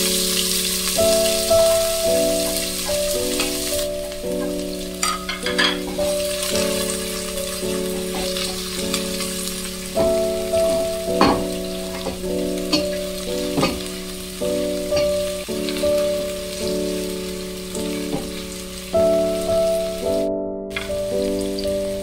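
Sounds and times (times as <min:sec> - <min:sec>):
onions sizzling in hot oil: 0:00.0 - 0:20.1, 0:20.7 - 0:22.0
background music with sustained chords: 0:00.0 - 0:22.0.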